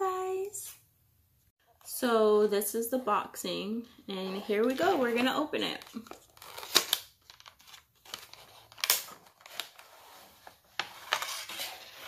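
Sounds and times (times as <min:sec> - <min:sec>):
cardboard and plastic crinkling: 0:04.4 - 0:12.0.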